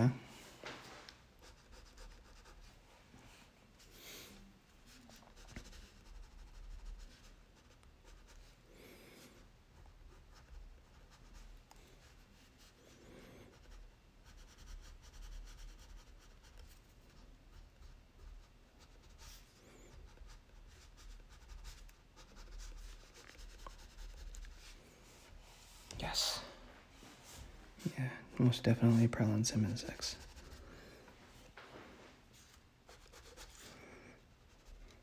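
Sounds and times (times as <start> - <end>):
crayon scratching on paper: 1.4 - 2.7, 4.9 - 8.5, 10.0 - 24.8, 29.7 - 30.6, 32.4 - 35.0.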